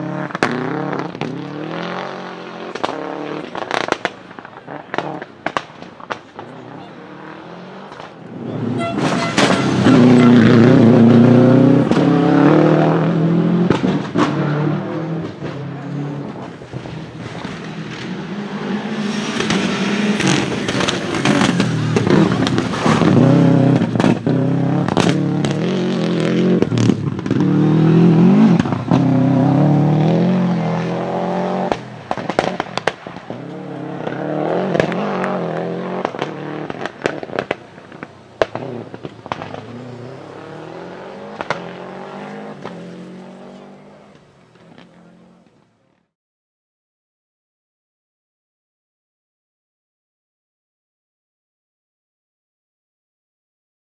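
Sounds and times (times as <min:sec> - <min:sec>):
rally car engine revving: 0:00.0 - 0:45.6
backfires popping and banging: 0:02.6 - 0:06.6, 0:19.2 - 0:25.6, 0:31.7 - 0:40.2, 0:41.2 - 0:42.9.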